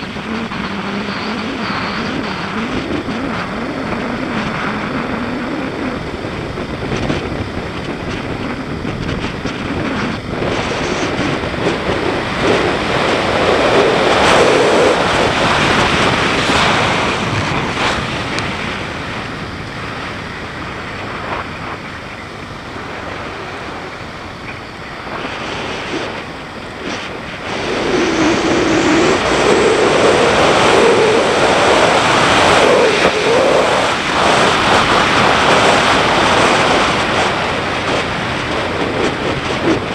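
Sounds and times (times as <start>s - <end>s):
motorcycle engine revving: 0.0s - 39.9s
wind rush on microphone: 0.0s - 39.9s.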